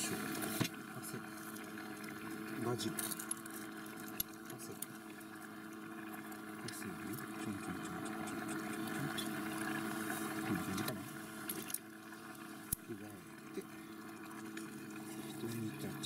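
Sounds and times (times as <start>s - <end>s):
soup bubbling and hissing: 0.0s - 16.0s
shaker clicks and taps: 7.2s - 9.3s.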